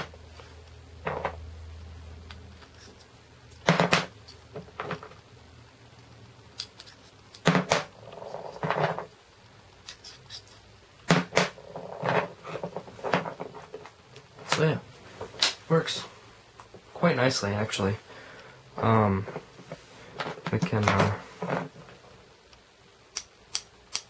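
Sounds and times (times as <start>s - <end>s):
handling noise: 0.0s - 1.5s, 2.2s - 5.3s, 11.0s - 16.9s, 18.8s - 22.3s.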